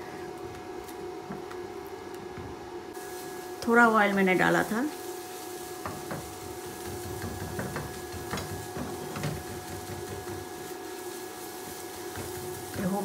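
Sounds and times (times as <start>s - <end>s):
eggs frying in oil: 2.9s - 13.0s
spatula scraping and tapping pan: 5.8s - 10.8s, 11.7s - 13.0s.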